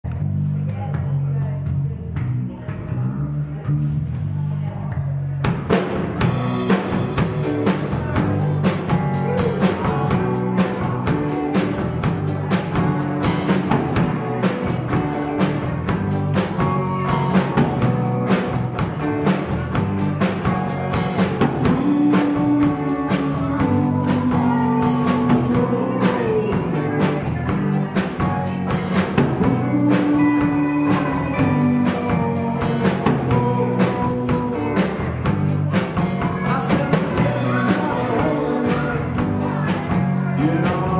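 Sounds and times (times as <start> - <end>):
electric bass: 0.0 - 40.9
drum kit steady beat: 5.4 - 40.9
electric guitars: 5.5 - 40.9.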